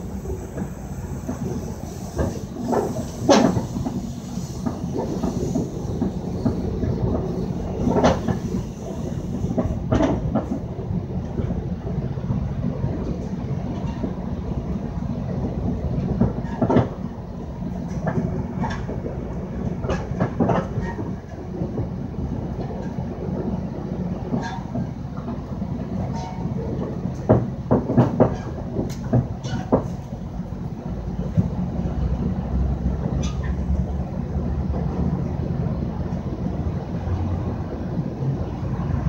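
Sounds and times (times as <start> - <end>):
train rumbling: 0.0 - 39.0
wheels clacking over rail joints: 0.0 - 39.0.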